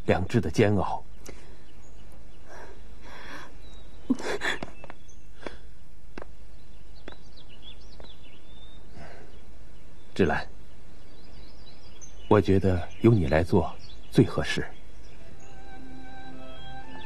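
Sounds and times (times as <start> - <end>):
constant low hum: 0.0 - 17.0
faint high bird chirps: 6.5 - 17.0.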